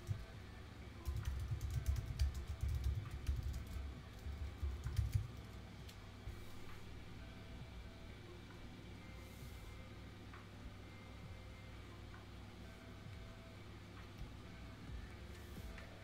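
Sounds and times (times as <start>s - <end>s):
faint steady hum: 0.0s - 16.0s
typing clicks and taps: 1.0s - 5.3s.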